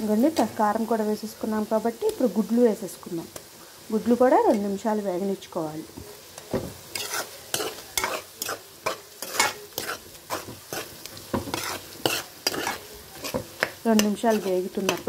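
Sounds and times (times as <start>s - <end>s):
hot oil sizzling: 0.0s - 15.0s
spoon scraping metal pan: 6.4s - 15.0s.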